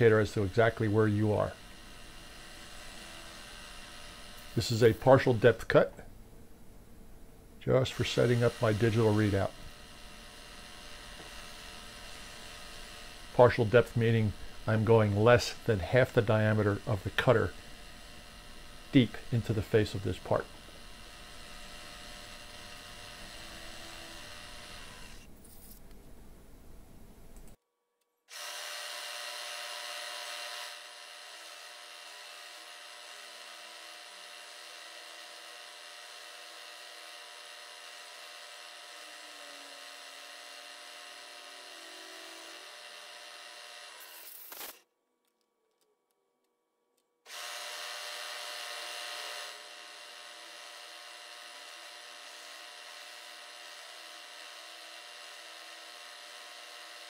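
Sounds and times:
milling machine whir: 0:00.0 - 0:05.4, 0:07.9 - 0:25.3.

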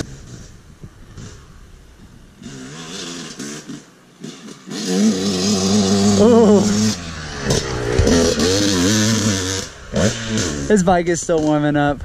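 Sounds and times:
two-stroke dirt bike engine: 0:00.0 - 0:12.0.

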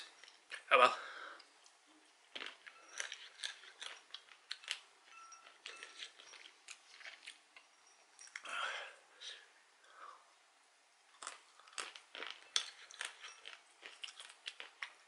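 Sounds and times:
person chewing peanuts: 0:01.4 - 0:08.6, 0:11.1 - 0:15.0.

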